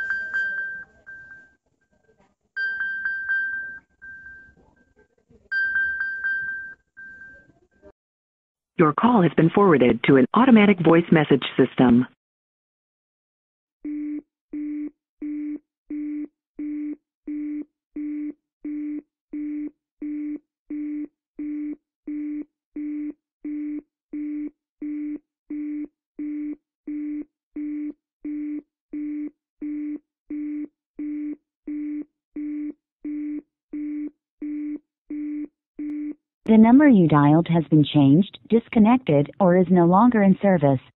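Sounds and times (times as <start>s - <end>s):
telephone busy signal beeps: 0.0s - 1.6s.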